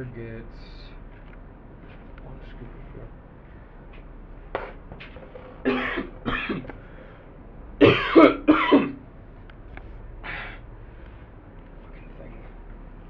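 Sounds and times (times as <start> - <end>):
man coughing: 5.6 - 6.7, 7.8 - 9.0.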